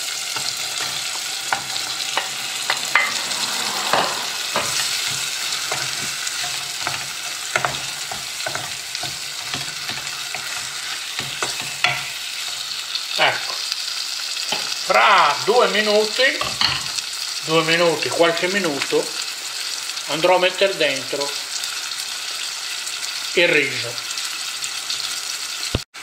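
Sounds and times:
tomato sauce sizzling in a saucepan: 0:00.0 - 0:26.0
seafood knocking against pan: 0:03.9 - 0:12.2.

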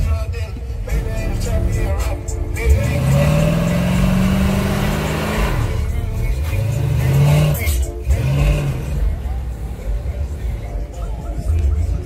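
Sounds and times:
car engine revving hard: 0:02.6 - 0:09.2.

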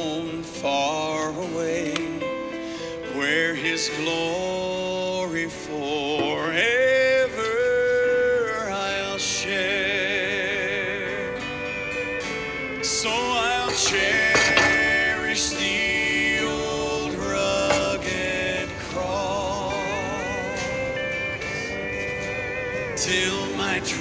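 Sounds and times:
song with vibrato singer: 0:00.0 - 0:24.0.

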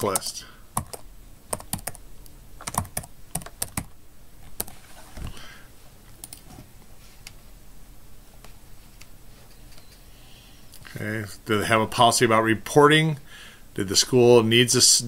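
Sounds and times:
keyboard typing: 0:00.0 - 0:02.0, 0:02.6 - 0:04.8, 0:06.2 - 0:06.4.

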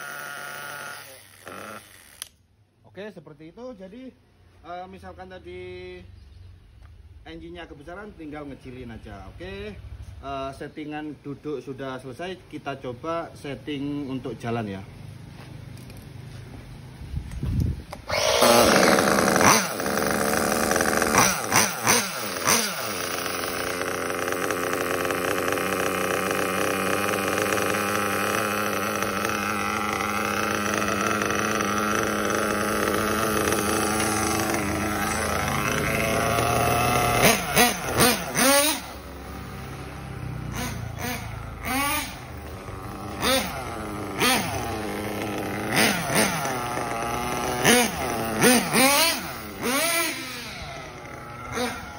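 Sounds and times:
nitro engine revving: 0:00.0 - 0:02.3, 0:17.6 - 0:51.9.

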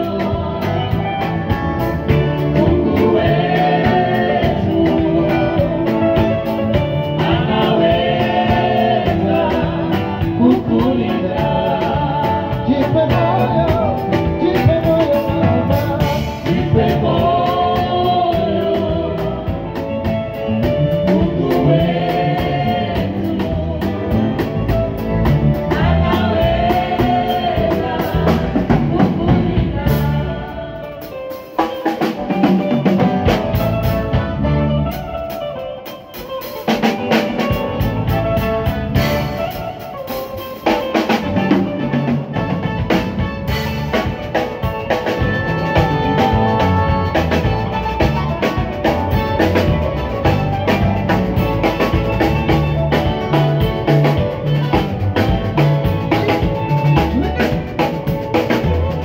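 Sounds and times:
person singing: 0:00.0 - 0:42.6
bass guitar: 0:00.0 - 0:59.0
drum kit: 0:00.0 - 0:59.0
electric guitar: 0:00.0 - 0:59.0.

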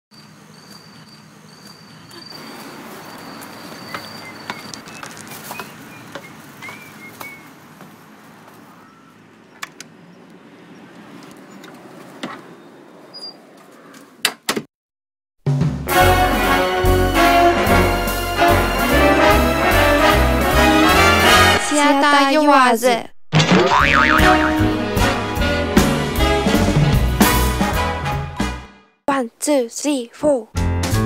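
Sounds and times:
bird-like chirps: 0:00.1 - 0:07.6, 0:08.6 - 0:11.7.

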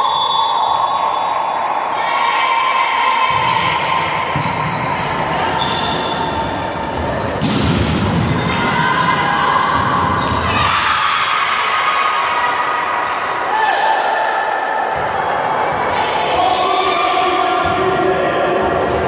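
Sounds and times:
sneakers squeaking on court: 0:03.2 - 0:07.4, 0:09.8 - 0:10.7
volleyball being struck: 0:06.9 - 0:08.2
loud impact: 0:06.9 - 0:08.6.

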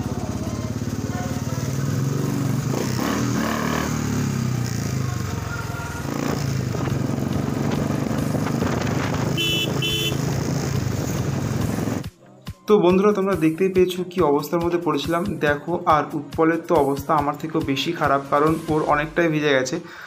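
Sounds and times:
motorcycle engine running: 0:00.0 - 0:12.1
motorcycle horn beeps: 0:09.2 - 0:10.4.

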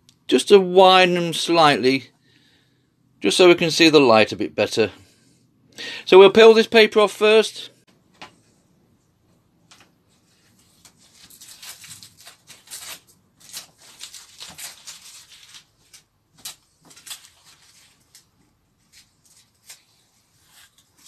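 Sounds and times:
paper rustling and tearing: 0:10.2 - 0:21.0.

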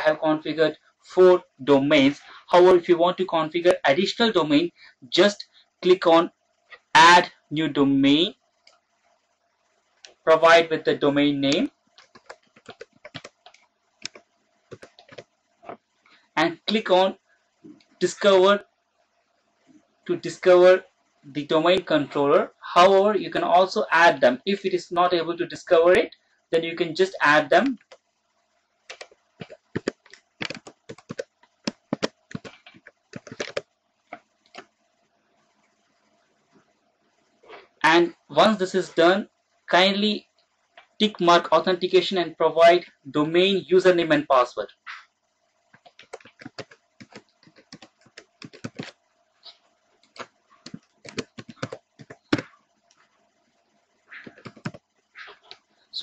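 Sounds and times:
faint steady hum: 0:00.0 - 0:56.0
keyboard typing: 0:11.4 - 0:15.8, 0:27.6 - 0:28.1, 0:28.9 - 0:34.8, 0:45.7 - 0:53.0, 0:54.1 - 0:55.6
keyboard key clicks: 0:28.9 - 0:33.6.

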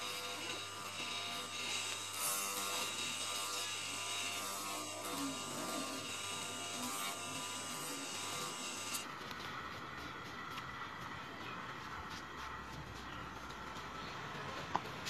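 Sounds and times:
grinding wheel motor buzzing: 0:00.0 - 0:10.0.

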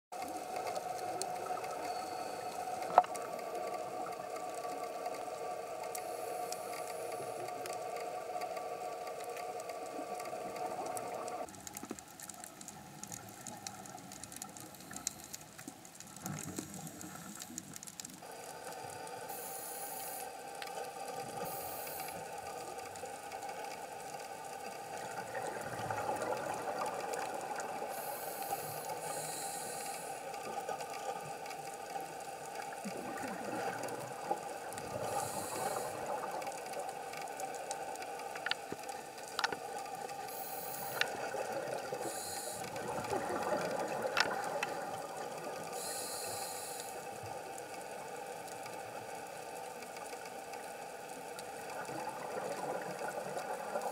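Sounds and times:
steady hum: 0:00.2 - 0:12.0, 0:16.2 - 0:47.2
diver breathing underwater: 0:21.3 - 0:22.3, 0:27.9 - 0:30.3, 0:34.8 - 0:36.3, 0:40.2 - 0:44.0, 0:45.7 - 0:47.0.

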